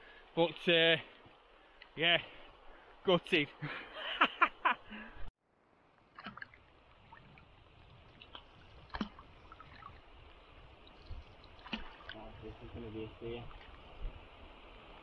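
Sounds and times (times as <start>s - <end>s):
man laughing: 3.6s - 5.2s.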